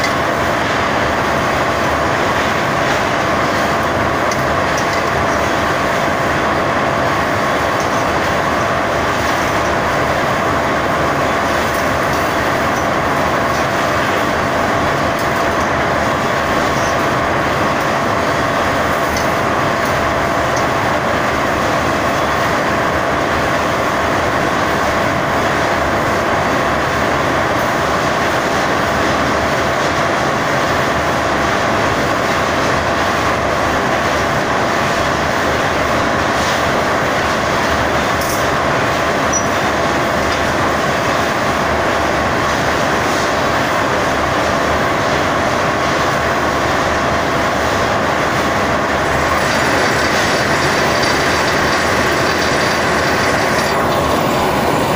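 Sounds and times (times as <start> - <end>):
thin machine whine: 46.7 - 54.9
machine running: 46.9 - 54.9.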